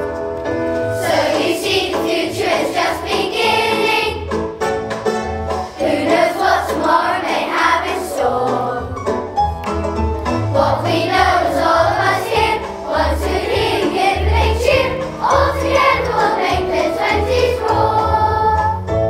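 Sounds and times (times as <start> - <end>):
musical accompaniment with bass: 0.0 - 19.0
children singing: 1.0 - 4.3, 5.8 - 9.0, 10.5 - 18.8.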